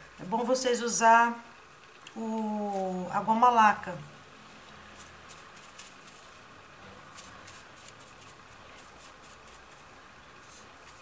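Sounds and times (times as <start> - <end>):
brush dabbing with light ticks: 4.4 - 11.0
metal leaf crinkling: 4.7 - 11.0.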